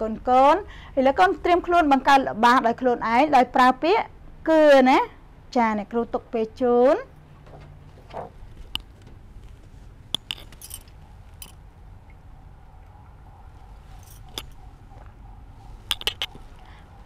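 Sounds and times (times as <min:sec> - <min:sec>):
faint room hum: 0:00.0 - 0:17.0
light clicks and clinks: 0:08.6 - 0:11.6, 0:13.9 - 0:15.2, 0:15.8 - 0:16.8.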